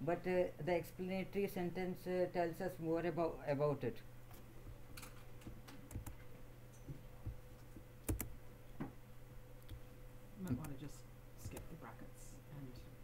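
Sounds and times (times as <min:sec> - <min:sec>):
faint steady hum: 0:00.0 - 0:13.0
computer keys clicking: 0:05.0 - 0:06.2, 0:08.0 - 0:08.3, 0:11.4 - 0:11.7.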